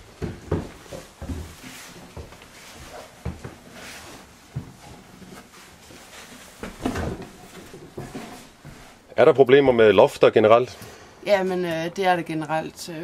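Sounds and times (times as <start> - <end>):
knocks and bumps on wood: 0.2 - 2.4
rustling: 0.6 - 9.1.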